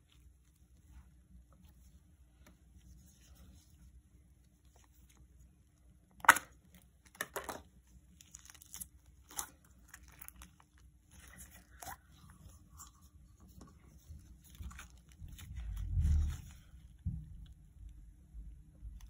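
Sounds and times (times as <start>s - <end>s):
sticky slime crackling and tearing: 8.1s - 12.0s.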